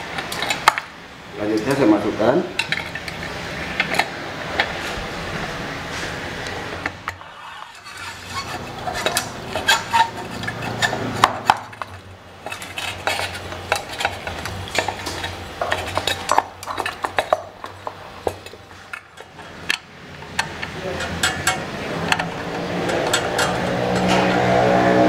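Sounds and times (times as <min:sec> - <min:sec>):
metallic clinks and scrapes: 0:07.2 - 0:25.0.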